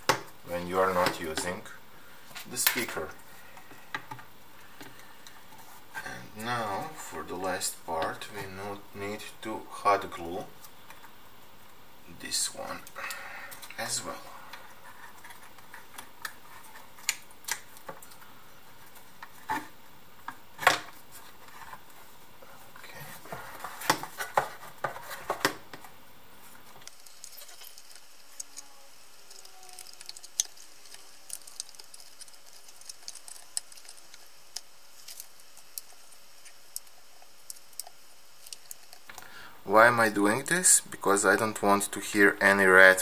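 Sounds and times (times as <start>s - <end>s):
rustling of cables: 20.9s - 39.3s.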